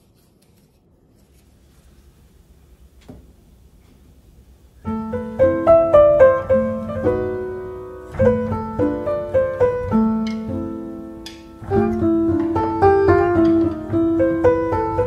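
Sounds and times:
solo piano music: 0:04.6 - 0:15.0.

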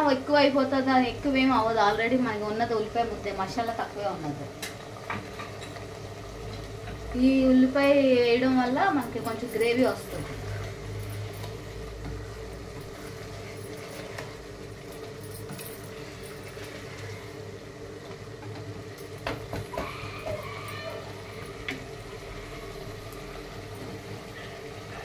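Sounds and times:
ladle stirring in a pot: 0:09.2 - 0:25.0.

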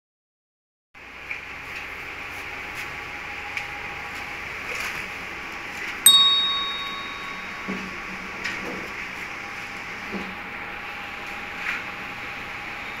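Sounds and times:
bell-like ding: 0:06.1 - 0:07.8.

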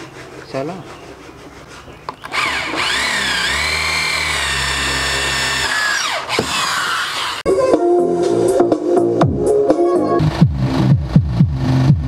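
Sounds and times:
electric drill whining: 0:02.2 - 0:07.5.

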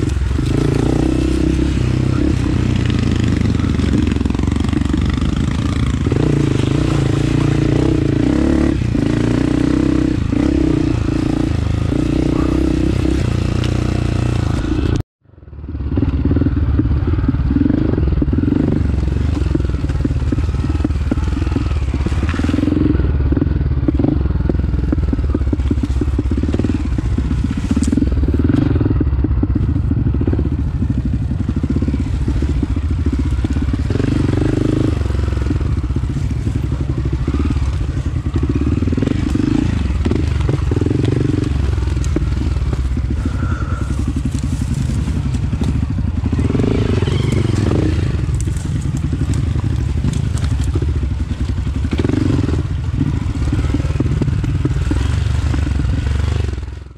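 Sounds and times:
motorcycle engine revving: 0:00.0 - 0:56.9
bike clattering over rough ground: 0:35.6 - 0:56.0.

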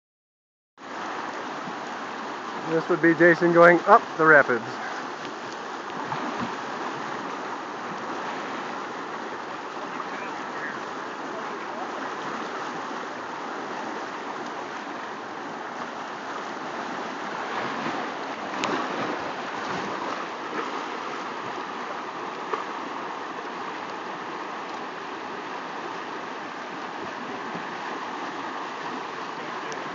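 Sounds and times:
whitewater rushing: 0:00.8 - 0:29.9.

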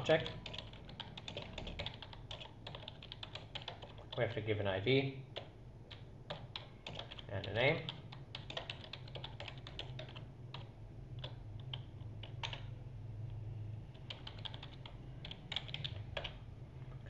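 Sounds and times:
low steady hum: 0:00.0 - 0:17.0
keyboard typing clicks: 0:05.4 - 0:12.7, 0:14.0 - 0:16.4.

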